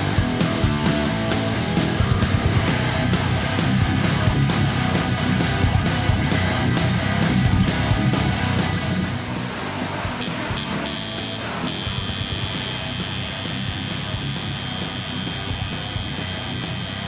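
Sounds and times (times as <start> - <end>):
background music with drums: 0.0 - 17.0
tattoo machine buzzing: 10.2 - 17.0.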